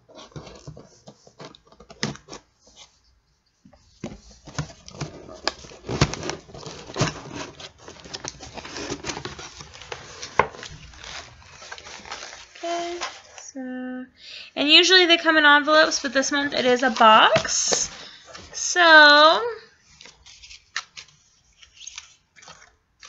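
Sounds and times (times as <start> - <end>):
cardboard tearing and rustling: 0.0 - 2.5, 4.4 - 13.4.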